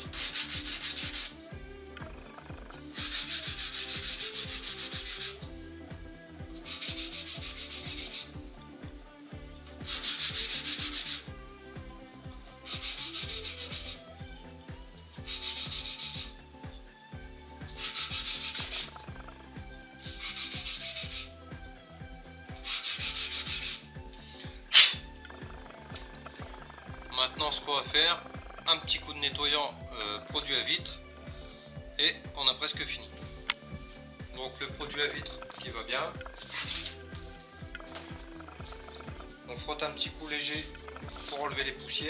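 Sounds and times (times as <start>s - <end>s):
plastic plate scraping on sandpaper: 0.0s - 1.4s, 2.3s - 5.4s, 6.6s - 8.3s, 9.8s - 11.3s, 15.3s - 16.3s, 17.8s - 19.0s.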